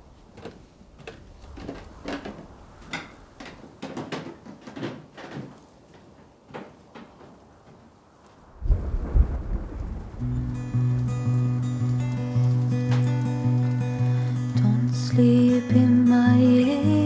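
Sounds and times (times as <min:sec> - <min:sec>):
footsteps on wooden stairs: 0:00.0 - 0:08.0
loud low rumble: 0:08.6 - 0:12.4.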